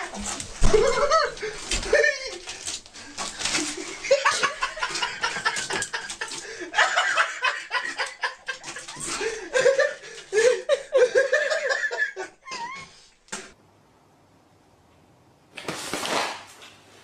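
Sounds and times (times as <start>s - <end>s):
rustling: 0.0s - 10.6s
people laughing: 0.6s - 2.6s, 3.6s - 12.8s.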